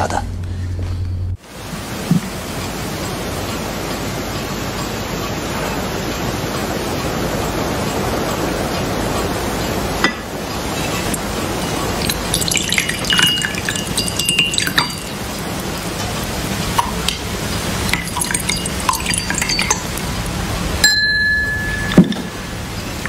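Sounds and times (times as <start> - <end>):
steady hiss: 1.4 - 23.0
cups and spoons clinking: 10.8 - 15.8, 17.9 - 20.0, 20.8 - 22.4
ringing note: 20.8 - 22.5.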